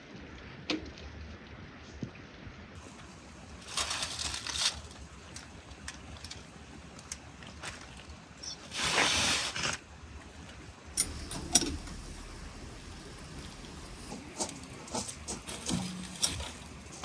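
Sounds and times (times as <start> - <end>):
aluminium foil crinkling: 2.8 - 9.8, 12.0 - 17.0.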